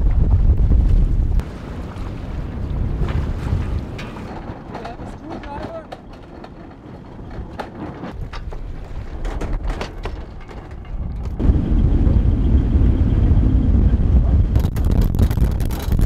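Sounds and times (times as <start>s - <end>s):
wind buffeting microphone: 0.0s - 16.0s
sharp knocks and clicks: 3.6s - 11.4s.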